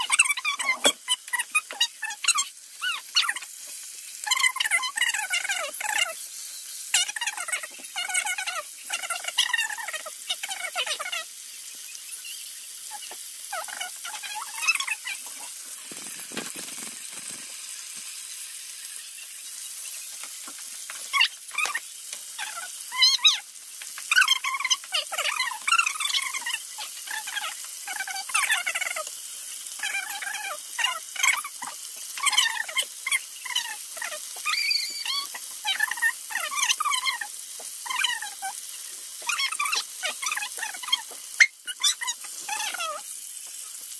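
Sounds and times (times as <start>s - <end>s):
sped-up squeaky voices: 0.0s - 3.6s, 4.2s - 6.2s, 6.9s - 11.3s, 12.2s - 16.2s, 22.4s - 23.5s, 24.1s - 29.1s, 29.8s - 38.6s, 39.2s - 43.0s
oil sizzling in a pan: 0.0s - 43.9s.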